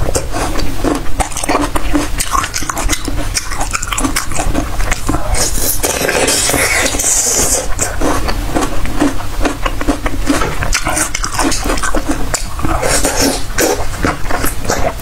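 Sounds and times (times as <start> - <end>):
biting and chewing tomato: 0.0 - 15.0.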